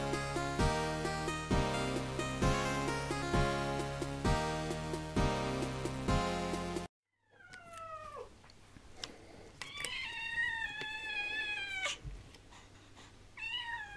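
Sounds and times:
cat meowing: 9.6s - 12.1s, 13.4s - 13.9s.

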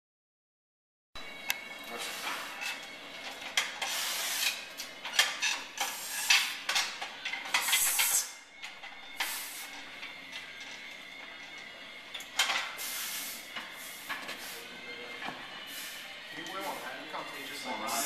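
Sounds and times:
hissing noise: 9.2s - 9.8s, 12.8s - 14.7s.

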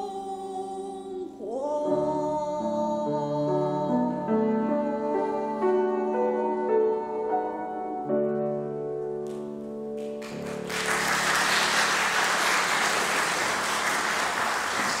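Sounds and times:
grand piano chords: 1.6s - 15.0s
audience applause: 10.0s - 15.0s.

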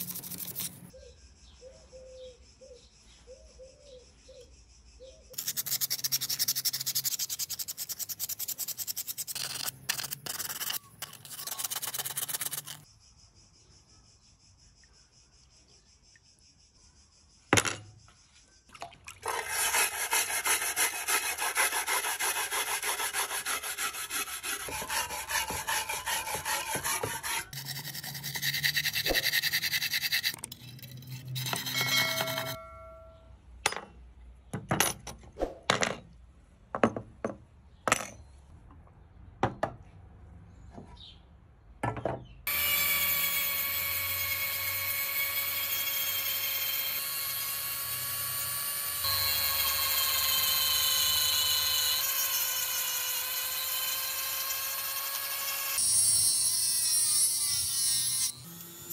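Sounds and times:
wire brush scrubbing metal tank: 19.2s - 30.4s
rotary tool whining: 21.6s - 33.0s.

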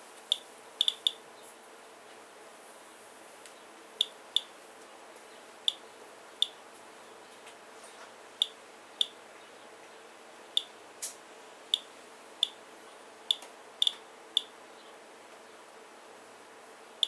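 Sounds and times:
geiger counter clicking: 0.3s - 1.2s.

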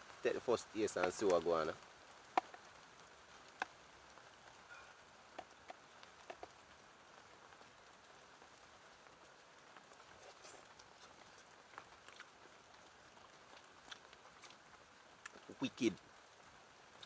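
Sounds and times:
light rain patter: 0.0s - 17.0s
sharp ticks and taps: 1.0s - 1.5s.

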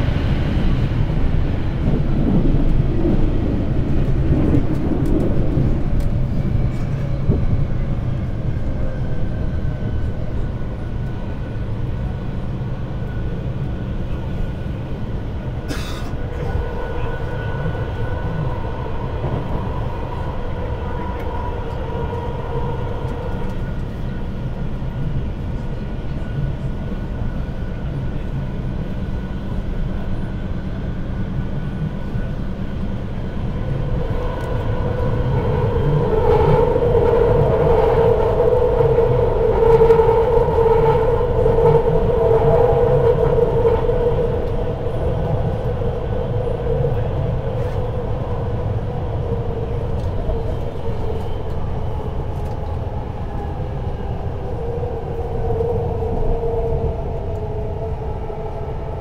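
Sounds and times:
train wheels rumbling on track: 0.0s - 59.0s.

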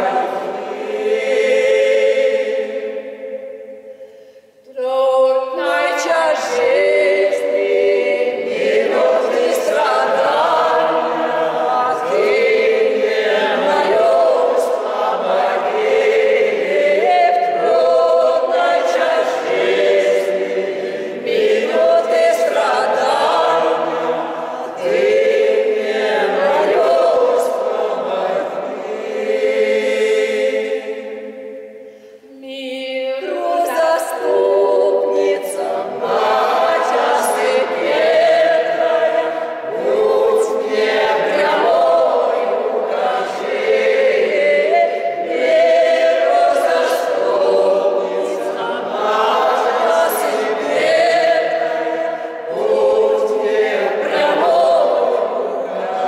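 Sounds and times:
mixed choir singing a cappella: 0.0s - 56.0s.

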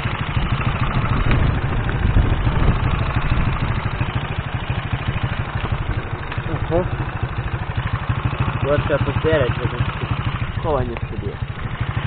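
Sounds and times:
wind noise on microphone: 0.0s - 7.7s
small engine rumbling: 0.0s - 12.0s.

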